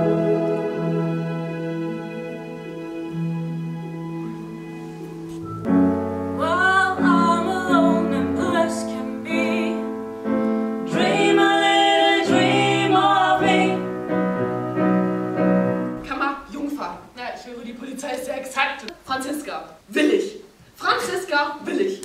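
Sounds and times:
piano accompaniment: 0:00.0 - 0:16.4
woman singing with vibrato: 0:06.4 - 0:09.9, 0:10.9 - 0:13.8.

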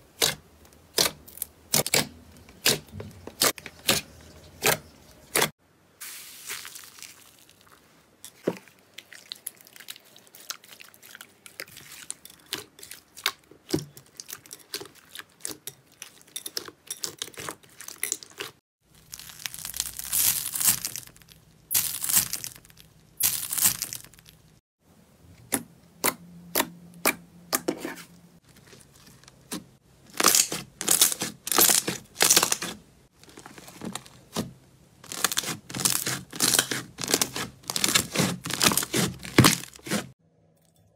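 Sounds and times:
crunchy crackling of beaded slime: 0:06.1 - 0:07.9, 0:17.3 - 0:24.6, 0:28.6 - 0:34.4, 0:35.0 - 0:40.2.

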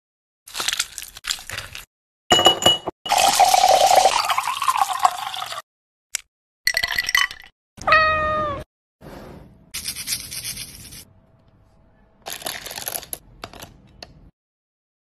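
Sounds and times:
cat meowing: 0:07.8 - 0:08.7
candies clattering into plastic cup: 0:12.3 - 0:13.8.

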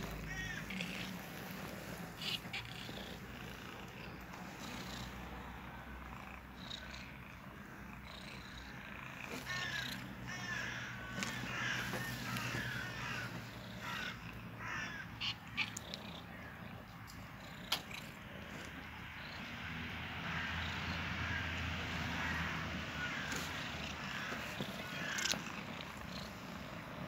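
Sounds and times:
cat mewing: 0:00.0 - 0:04.0, 0:09.1 - 0:17.0, 0:23.0 - 0:26.1
cat purring: 0:00.0 - 0:10.1, 0:15.2 - 0:19.6, 0:23.3 - 0:27.0.

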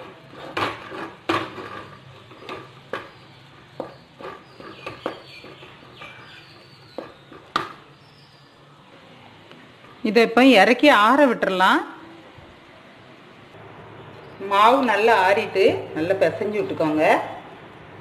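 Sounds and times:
spatula scraping metal pan: 0:00.0 - 0:07.5.

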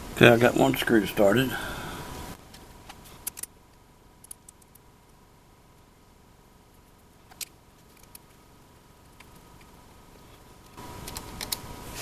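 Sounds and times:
small metal clicks and ticks: 0:03.2 - 0:03.5, 0:04.2 - 0:04.8, 0:07.3 - 0:08.4.

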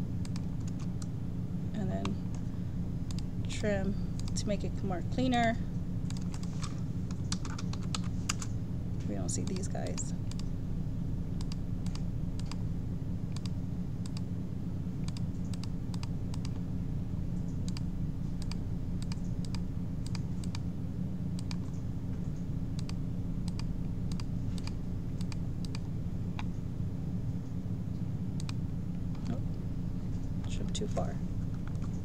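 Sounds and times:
steady low hum: 0:00.0 - 0:32.0
computer mouse clicks: 0:00.2 - 0:01.1, 0:03.1 - 0:03.3, 0:04.2 - 0:04.4, 0:06.1 - 0:08.5, 0:09.4 - 0:10.5, 0:11.4 - 0:12.6, 0:13.3 - 0:14.3, 0:15.0 - 0:16.6, 0:17.4 - 0:20.6, 0:21.4 - 0:21.8, 0:22.8 - 0:26.6, 0:28.4 - 0:29.4
keyboard clicks: 0:04.2 - 0:04.4, 0:06.1 - 0:08.5, 0:09.4 - 0:10.5, 0:11.4 - 0:12.6, 0:13.3 - 0:14.3, 0:15.0 - 0:16.6, 0:17.4 - 0:20.6, 0:21.4 - 0:21.8, 0:22.8 - 0:26.6, 0:28.4 - 0:29.4.

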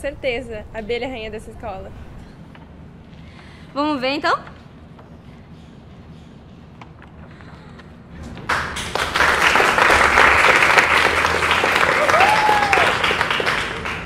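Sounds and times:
people clapping: 0:08.4 - 0:14.0.

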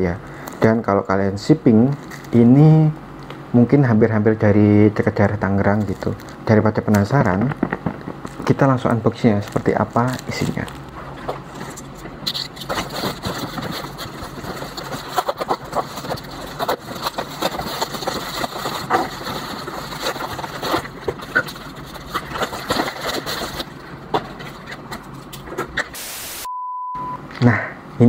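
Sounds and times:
packaging crackling and rustling: 0:05.7 - 0:25.8.

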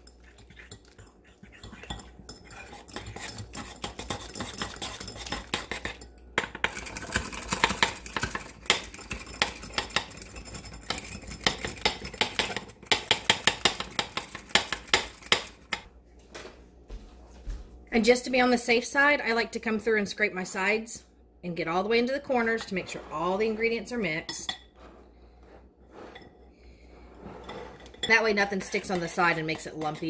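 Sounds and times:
wire whisk beating in bowl: 0:00.0 - 0:15.8, 0:28.0 - 0:30.0.

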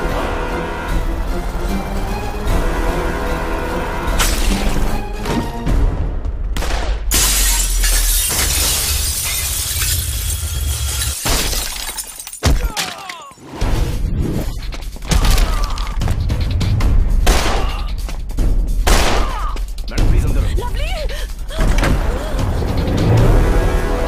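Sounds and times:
dramatic film music: 0:00.0 - 0:07.1, 0:13.4 - 0:24.0
crash of falling debris: 0:07.1 - 0:13.2
glass shattering: 0:07.1 - 0:13.4.

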